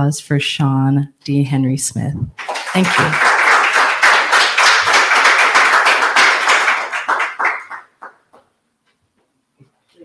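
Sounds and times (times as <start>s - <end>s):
audience applauding: 2.4s - 8.4s.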